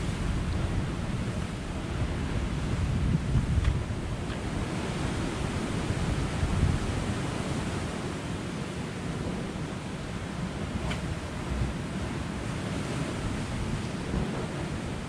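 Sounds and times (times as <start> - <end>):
wind buffeting microphone: 0.0 - 8.3
surf washing against rocks: 0.0 - 15.0.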